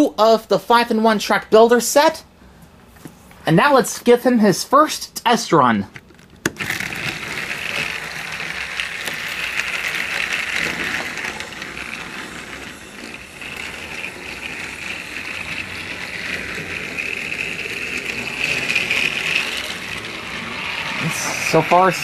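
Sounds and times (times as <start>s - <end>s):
toy train motor whirring: 6.4s - 22.0s
toy wheels rattling on track: 6.4s - 22.0s.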